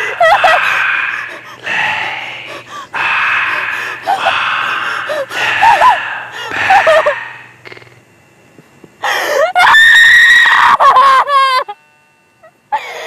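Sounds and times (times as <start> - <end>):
woman screaming: 9.4 - 11.4.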